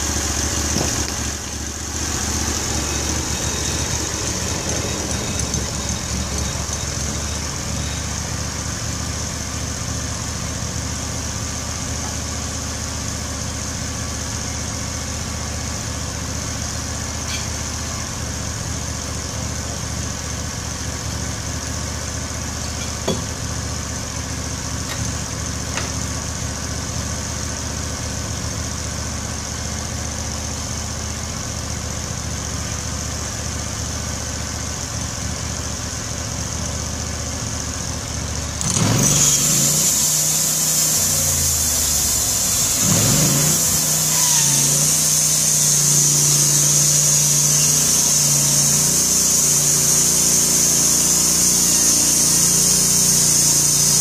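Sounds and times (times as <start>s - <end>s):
gasoline engine idling and revving: 0.0s - 54.0s.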